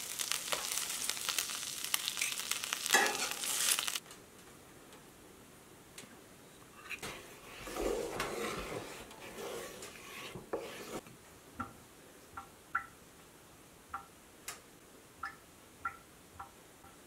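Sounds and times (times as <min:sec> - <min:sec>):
spatula scraping skillet: 0:00.1 - 0:04.0, 0:06.8 - 0:11.0.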